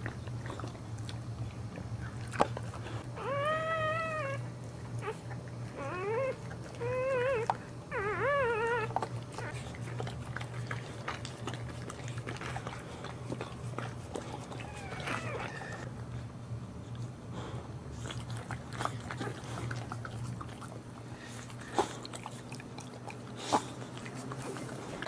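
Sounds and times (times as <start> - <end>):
puppy whimpering: 3.1 - 10.8, 14.2 - 15.9.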